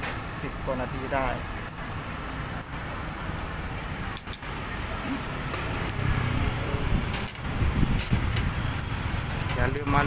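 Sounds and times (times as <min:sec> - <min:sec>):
fish grilling hiss and crackle: 0:00.0 - 0:10.0
faint voices: 0:03.4 - 0:06.0.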